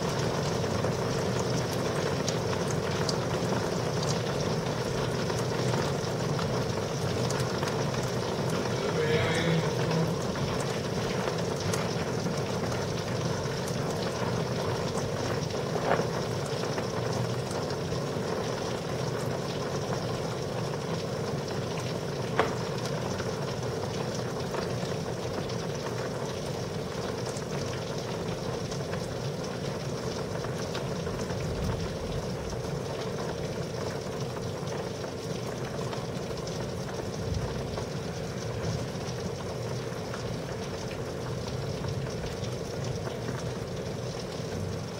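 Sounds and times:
heavy rain hissing: 0:04.4 - 0:16.7, 0:36.3 - 0:44.9.

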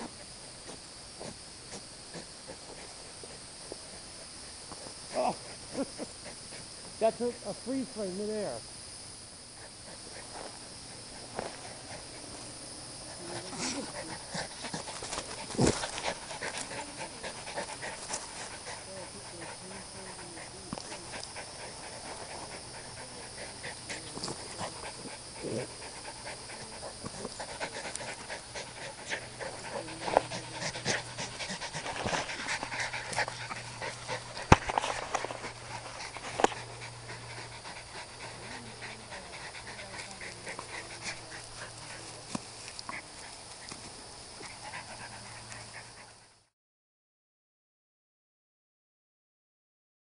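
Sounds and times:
dogs panting: 0:00.0 - 0:08.6, 0:09.3 - 0:46.5.

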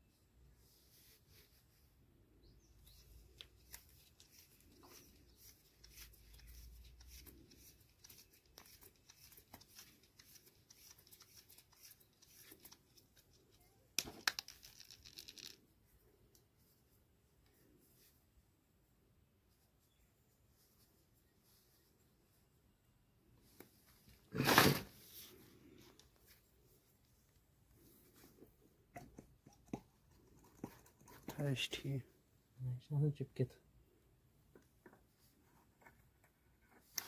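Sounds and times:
tape clicks and crinkles: 0:03.3 - 0:15.6.

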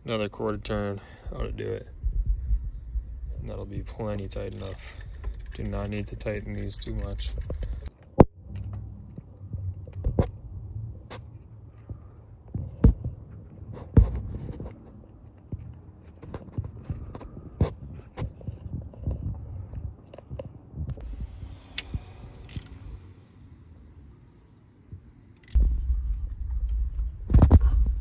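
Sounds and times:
low handling rumble: 0:00.4 - 0:13.5, 0:25.5 - 0:28.0
metal clicks and knocks: 0:04.1 - 0:10.1
metal scraping: 0:21.1 - 0:23.1.

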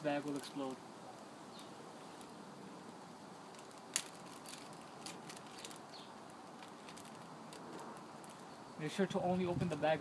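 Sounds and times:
steady background hiss: 0:00.0 - 0:10.0
plastic bag crinkling: 0:03.5 - 0:08.5.

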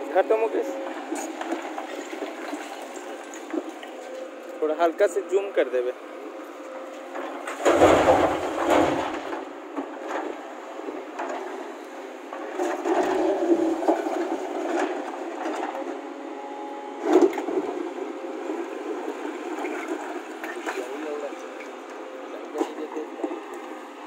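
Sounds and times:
excavator engine running: 0:00.0 - 0:24.0
rocks clattering into steel truck bed: 0:07.4 - 0:10.2.

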